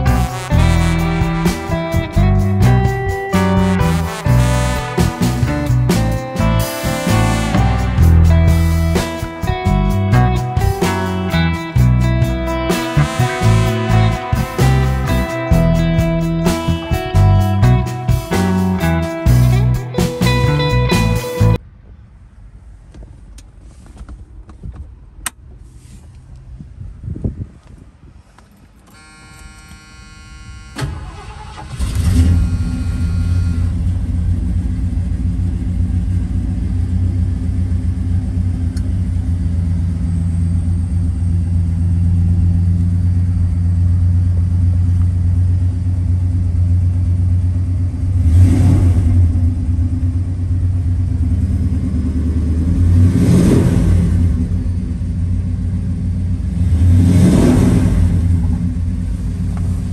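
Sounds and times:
engine revving: 0.0 - 21.6, 29.0 - 34.7, 48.1 - 55.1, 56.4 - 59.9
car engine starting and idling: 0.0 - 26.6, 28.3 - 59.9
brief steady tone: 28.9 - 33.9.

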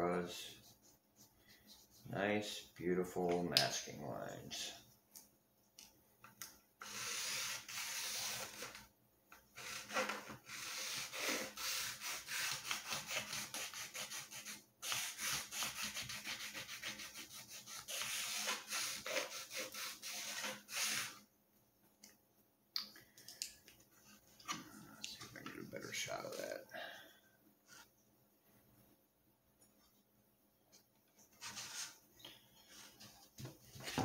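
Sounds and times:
hand tool rubbing wood: 6.8 - 8.8, 9.6 - 21.2.

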